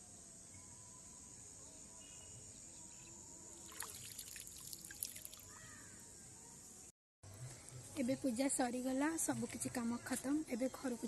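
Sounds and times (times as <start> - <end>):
faint high hiss: 0.0 - 9.4
water splashing and dripping: 3.6 - 5.6.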